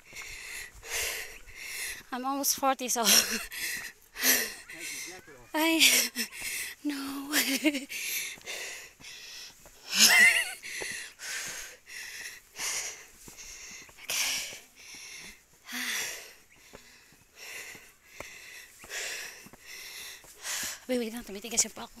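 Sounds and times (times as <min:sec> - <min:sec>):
heavy rapid breathing: 0:00.0 - 0:02.2, 0:03.0 - 0:21.0.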